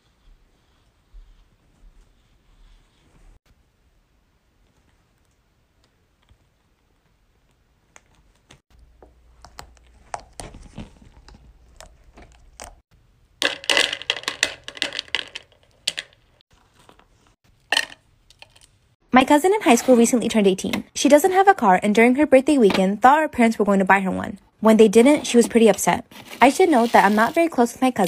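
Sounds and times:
wax beads clattering into container: 13.4s - 16.2s.

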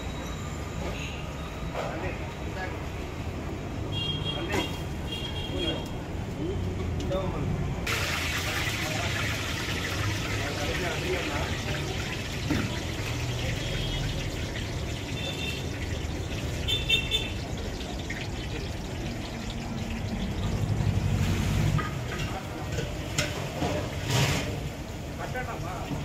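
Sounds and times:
low street traffic rumble: 0.0s - 26.0s
hot oil sizzling: 7.8s - 26.0s.

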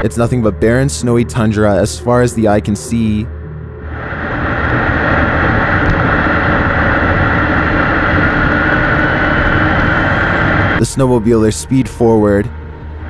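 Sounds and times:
snowmobile engine accelerating: 3.9s - 11.6s.

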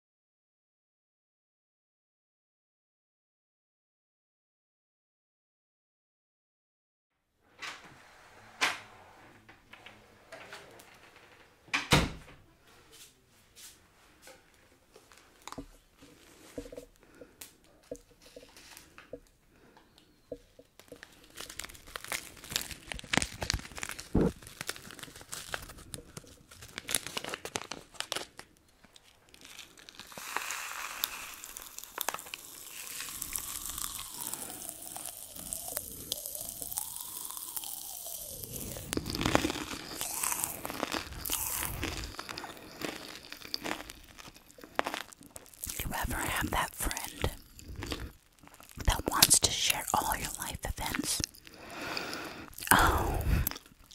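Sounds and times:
candy crackling fizz in mouth: 20.7s - 53.9s
candy packet crinkling and tearing: 20.8s - 51.7s, 52.4s - 53.9s.

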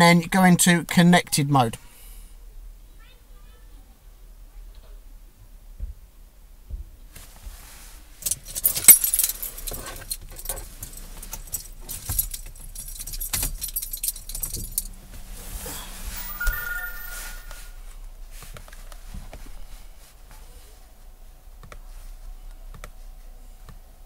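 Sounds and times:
keys jangling: 8.2s - 14.9s.

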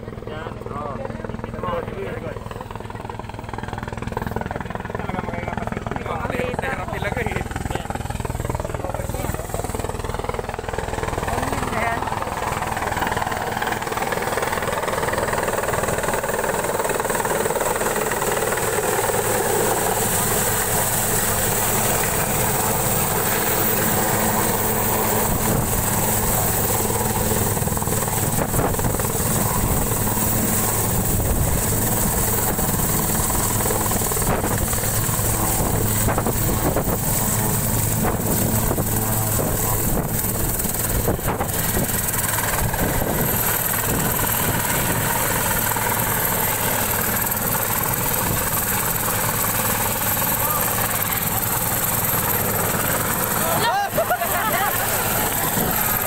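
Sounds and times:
helicopter turbine and rotor: 0.0s - 56.0s.

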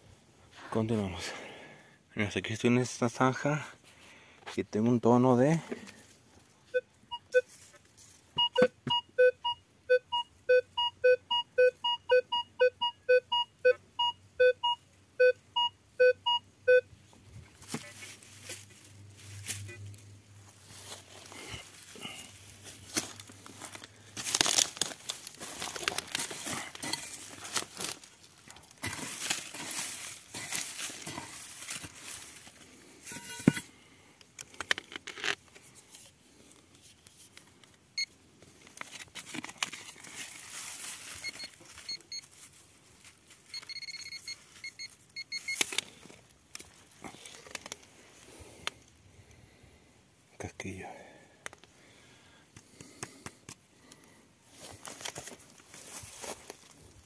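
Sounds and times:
metal detector beeps: 6.7s - 7.5s, 8.4s - 16.9s, 33.1s - 33.7s, 41.2s - 42.3s, 43.5s - 45.8s
soil scraping and crunching: 17.5s - 33.3s, 39.8s - 43.4s, 54.5s - 57.0s.

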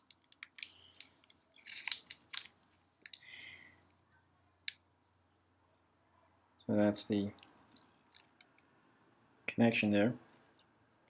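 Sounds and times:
plastic bag crinkling: 0.1s - 3.2s.

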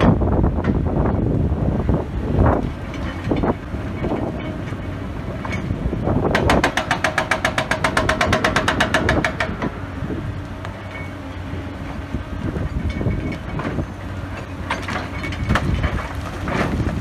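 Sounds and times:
diesel engine running: 0.0s - 17.0s
hydraulic breaker hammering rock: 5.4s - 9.8s, 12.8s - 17.0s.

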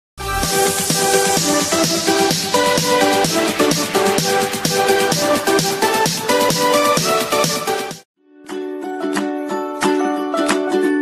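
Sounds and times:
electronic music with synth chords: 0.2s - 10.8s.

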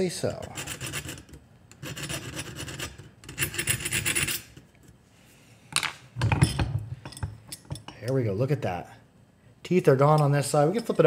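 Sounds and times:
file rasping on steel: 0.4s - 4.6s.

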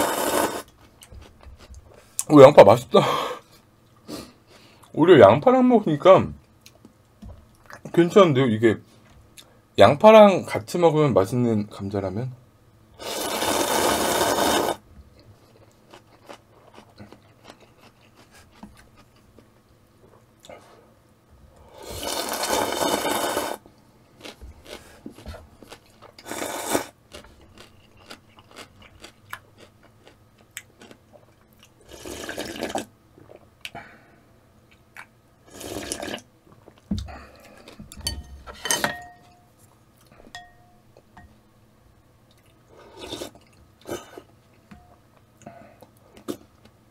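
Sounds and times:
man slurping noodles: 0.0s - 0.7s, 13.0s - 14.8s, 21.7s - 23.6s, 26.2s - 27.0s, 31.9s - 32.8s, 35.5s - 36.2s
faint chewing: 15.1s - 19.5s, 24.2s - 33.8s, 42.3s - 46.8s.

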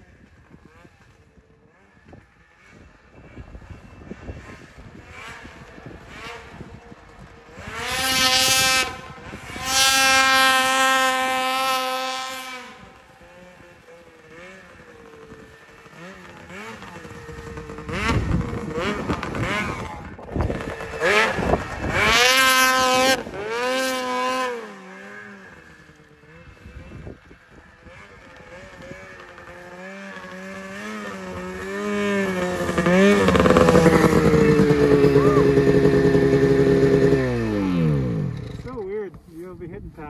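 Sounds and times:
snowmobile engine revving: 0.1s - 39.4s.

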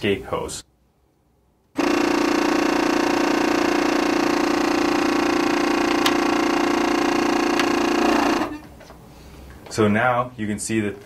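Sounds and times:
air compressor humming: 1.8s - 9.1s.

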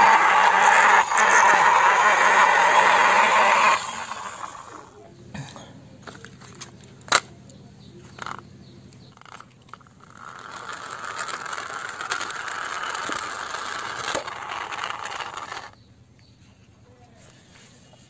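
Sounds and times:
toy car wheels scraping concrete: 0.0s - 5.0s, 8.0s - 15.8s.

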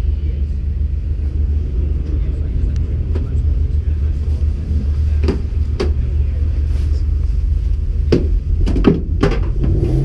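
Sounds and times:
low rumble: 0.0s - 10.0s
car door knocks and clicks: 8.1s - 9.8s.

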